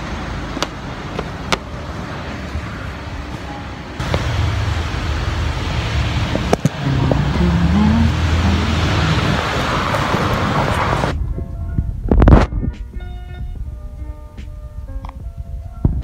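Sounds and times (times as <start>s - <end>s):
traffic rumble and hiss: 0.0s - 16.0s
background music: 11.1s - 16.0s.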